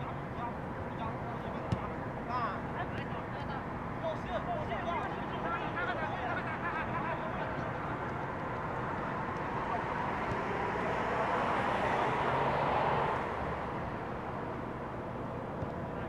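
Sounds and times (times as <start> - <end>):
outdoor city noise: 0.0 - 16.0
vehicle passing: 7.6 - 14.8.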